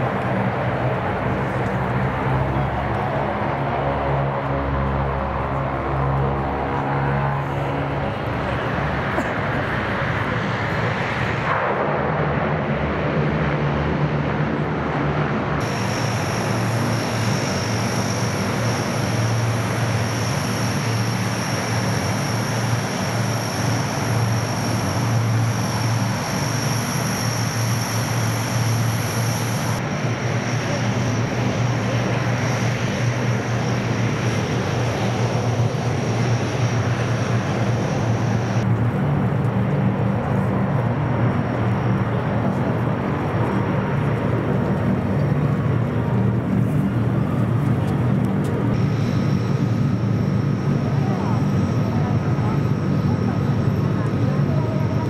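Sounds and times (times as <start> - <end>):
high turbine whine: 0.0 - 55.0
low propeller drone: 0.0 - 55.0.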